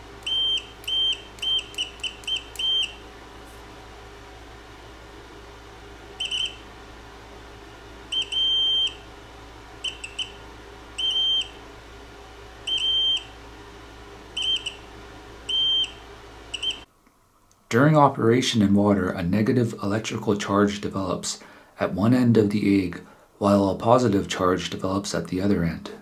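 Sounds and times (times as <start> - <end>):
multimeter continuity beeps: 0.2 - 3.0, 6.2 - 6.6, 8.1 - 9.0, 9.8 - 10.4, 11.0 - 11.6, 12.7 - 13.3, 14.4 - 14.8, 15.5 - 16.9.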